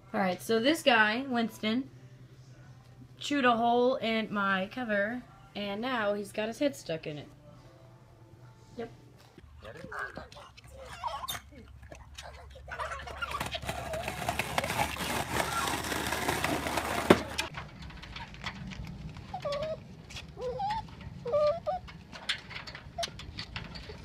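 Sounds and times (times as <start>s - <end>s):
plastic wheels rolling on concrete: 12.3s - 24.0s.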